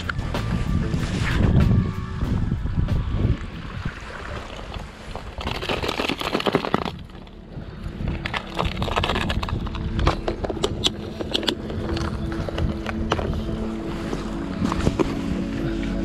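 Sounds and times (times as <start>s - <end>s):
wind buffeting microphone: 0.0s - 16.0s
crunching on shelly shore: 3.3s - 16.0s
plastic tackle box clicks: 8.2s - 13.4s.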